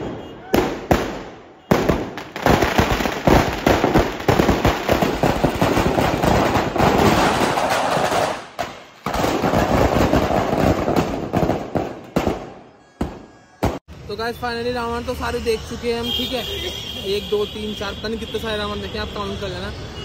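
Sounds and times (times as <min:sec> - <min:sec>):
firecrackers cracking and banging: 0:00.0 - 0:13.9.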